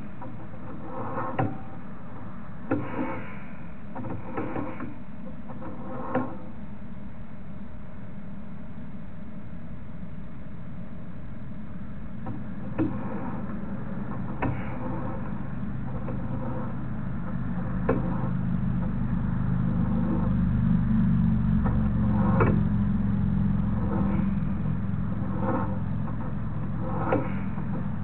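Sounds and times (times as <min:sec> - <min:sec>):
low engine-like hum: 0:00.0 - 0:05.8, 0:06.4 - 0:28.0
sharp clicks and knocks: 0:00.2 - 0:01.8, 0:12.2 - 0:19.2, 0:21.6 - 0:22.8, 0:25.1 - 0:28.0.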